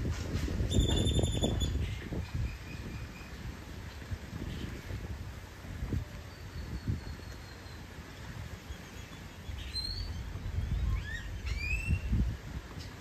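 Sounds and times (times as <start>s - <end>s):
birds chirping and whistling: 0.7s - 3.4s, 8.7s - 12.2s.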